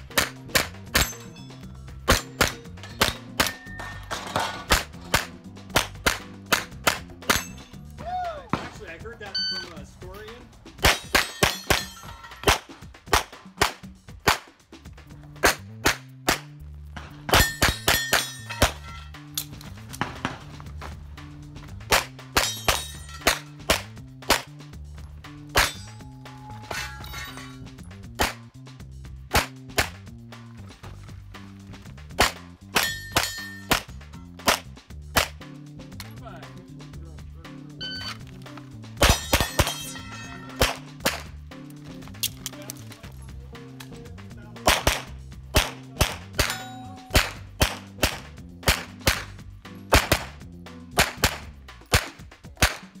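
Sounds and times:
steel target ringing: 0.9 - 4.1, 9.3 - 9.8, 32.8 - 33.7, 39.0 - 40.7, 46.4 - 47.2
pistol shots: 4.7 - 7.5, 10.8 - 14.5, 15.4 - 18.8, 28.2 - 28.4, 29.3 - 30.0, 44.6 - 50.3, 51.0 - 53.0
rapid pistol fire: 44.7 - 46.5, 47.1 - 49.3, 49.9 - 50.3, 51.0 - 53.0.

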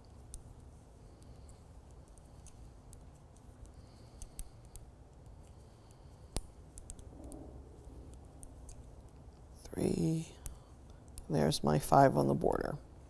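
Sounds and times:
knitting needles clicking: 0.0 - 5.6, 6.2 - 7.4.

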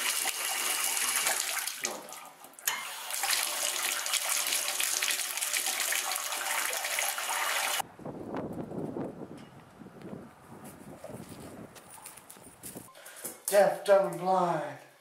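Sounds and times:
water running into bathtub: 0.0 - 7.8.

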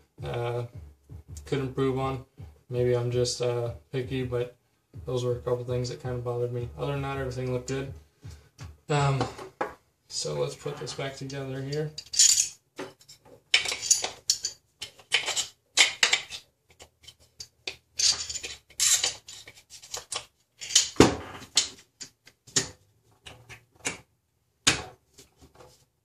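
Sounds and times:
metal parts clicking and clacking: 11.7 - 21.0.

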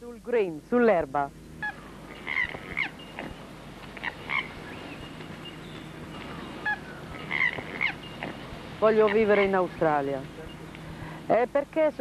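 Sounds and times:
birds calling: 0.8 - 11.8.

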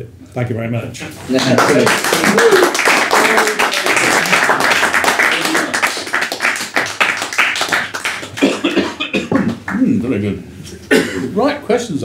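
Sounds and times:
audience applauding: 1.3 - 8.7.

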